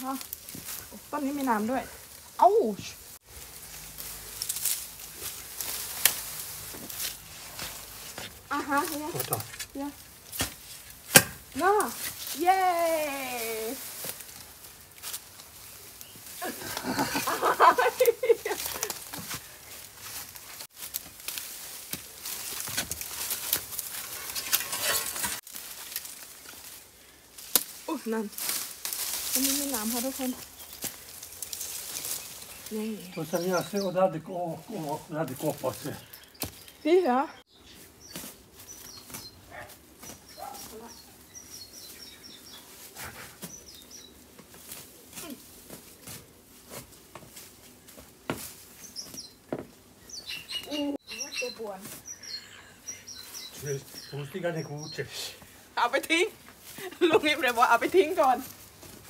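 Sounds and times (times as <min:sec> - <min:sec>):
bamboo leaves rustling: 0:00.0 - 0:59.0
dry plant litter crackling: 0:00.0 - 0:59.0
sharp snaps and knocks: 0:09.1 - 0:12.4, 0:20.8 - 0:26.6, 0:27.4 - 0:27.8
spade digging into soil: 0:21.8 - 0:26.0
small bird chirping: 0:29.4 - 0:34.9, 0:35.8 - 0:42.8, 0:43.4 - 0:44.2, 0:48.8 - 0:55.4.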